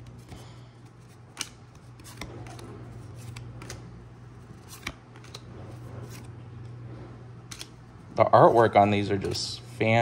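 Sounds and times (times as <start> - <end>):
cards sliding and rustling: 0.0 - 10.0
steady low hum: 0.0 - 10.0
sharp card clicks: 0.2 - 3.9, 4.6 - 5.5, 7.4 - 7.8.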